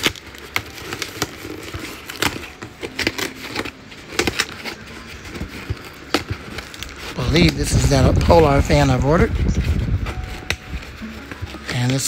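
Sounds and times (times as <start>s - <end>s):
packing tape tearing on cardboard: 0.0s - 12.0s
desk fan blowing: 3.9s - 12.0s.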